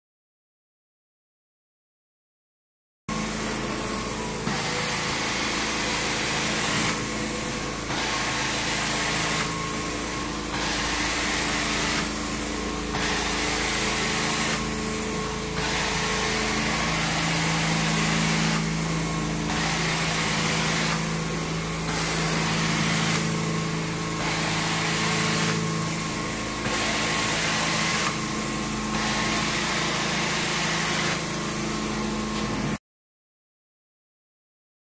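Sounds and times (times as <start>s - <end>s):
carpet cleaner motor hum: 3.1s - 32.8s
suction hiss: 4.4s - 31.3s.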